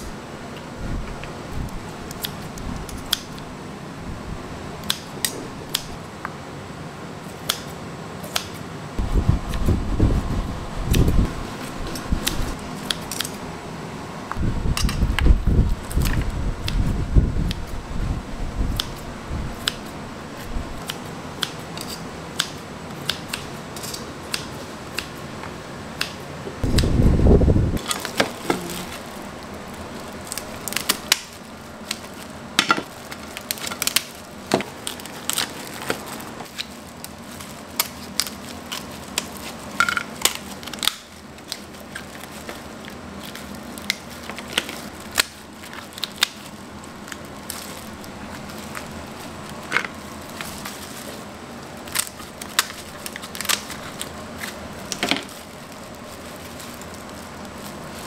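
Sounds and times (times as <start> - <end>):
low rumble: 9.0 - 12.6.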